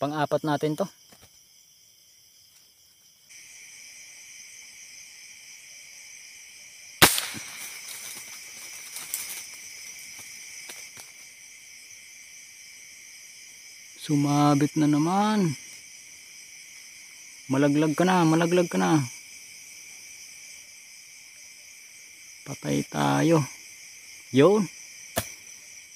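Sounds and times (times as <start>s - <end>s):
crickets chirping: 0.0s - 25.9s
airgun shot: 7.0s - 7.9s.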